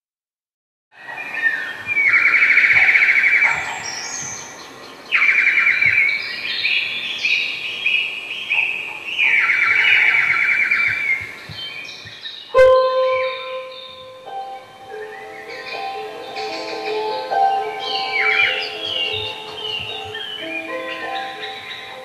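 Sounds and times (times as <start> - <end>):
bird-like warbling trills: 1.0 - 6.2, 8.4 - 11.5, 12.4 - 22.0
high chirps and whistles: 8.6 - 22.0.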